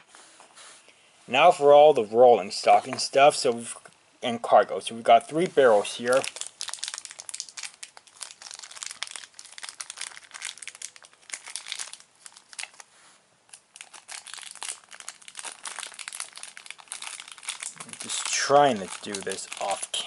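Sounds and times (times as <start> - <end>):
plastic bag crinkling: 5.3 - 12.9, 13.5 - 20.0.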